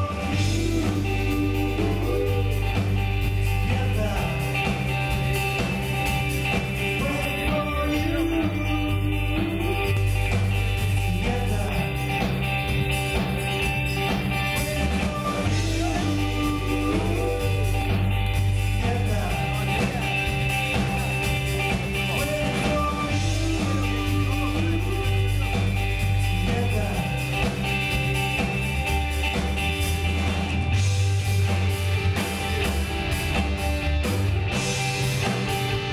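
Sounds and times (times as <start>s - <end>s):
sung lead vocal: 0.0s - 28.6s
bass line: 0.0s - 35.9s
live rock band playing: 0.0s - 35.9s.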